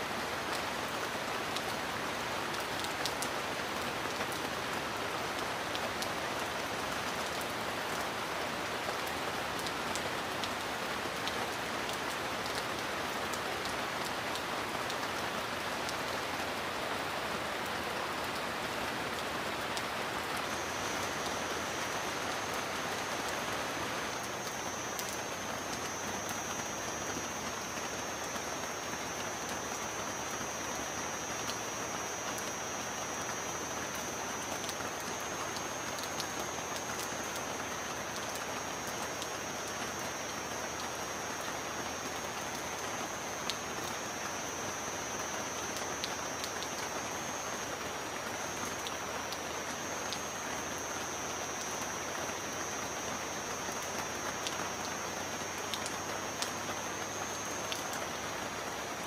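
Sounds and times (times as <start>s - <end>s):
heavy rain falling: 0.0s - 59.0s.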